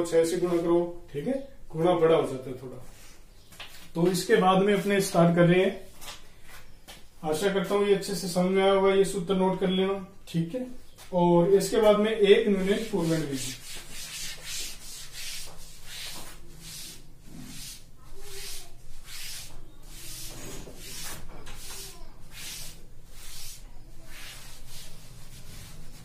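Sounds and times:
duster wiping blackboard: 0:12.4 - 0:26.0.

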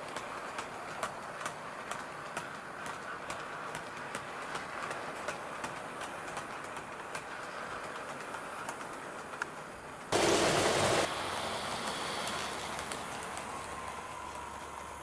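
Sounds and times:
model train rolling rumble: 0:00.0 - 0:15.0
wheels clicking on rails: 0:00.0 - 0:15.0
loud rushing noise: 0:10.1 - 0:12.3.

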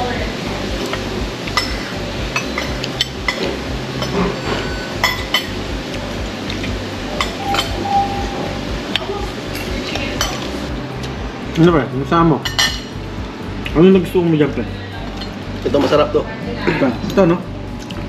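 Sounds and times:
low steady hum: 0:00.0 - 0:18.0
cutlery clinking on plates: 0:07.2 - 0:07.8, 0:12.4 - 0:12.9.

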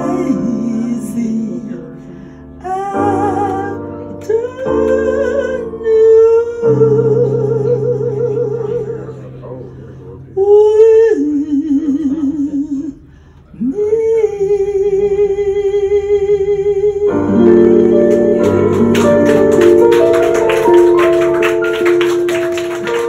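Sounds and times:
woman singing with vibrato: 0:13.6 - 0:19.5
digital piano chords: 0:17.1 - 0:23.0.

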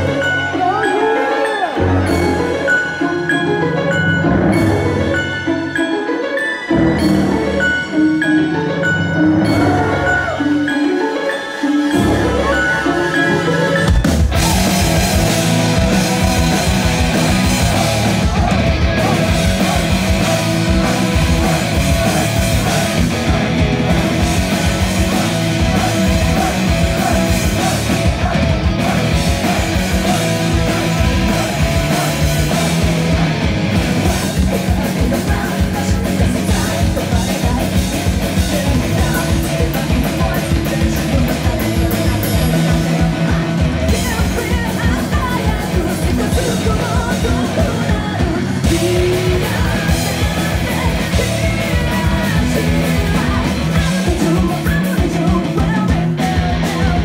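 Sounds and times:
hard rock band playing: 0:00.0 - 0:57.0
distorted rhythm guitar: 0:11.9 - 0:57.0.

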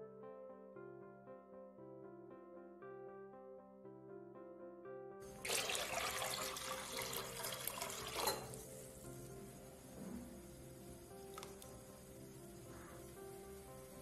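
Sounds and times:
background music: 0:00.0 - 0:14.0
water pouring into a pot: 0:05.3 - 0:14.0.

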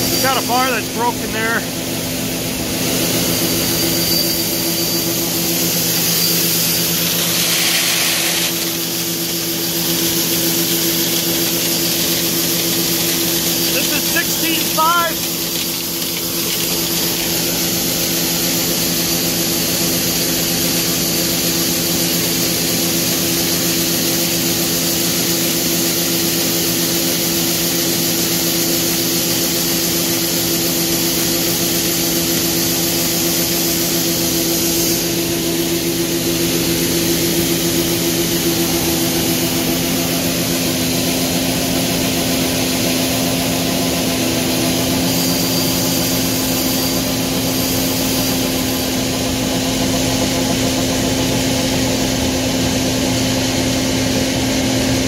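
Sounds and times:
combine engine and auger drone: 0:00.1 - 0:01.8, 0:04.2 - 0:19.8
corn pouring into wagon: 0:06.4 - 0:18.3.

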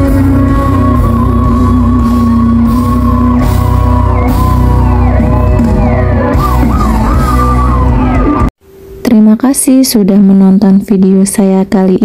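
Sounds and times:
live pop band music: 0:00.0 - 0:08.5.

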